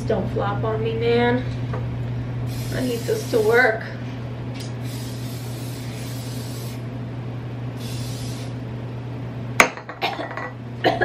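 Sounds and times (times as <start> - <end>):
aerosol spray hissing: 2.5 - 3.6, 4.8 - 6.8, 7.8 - 8.6.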